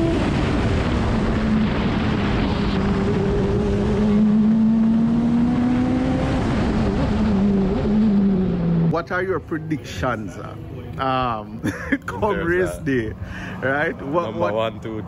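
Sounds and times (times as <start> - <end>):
race car engine revving: 0.0 - 9.2
wind and road noise: 0.0 - 15.0.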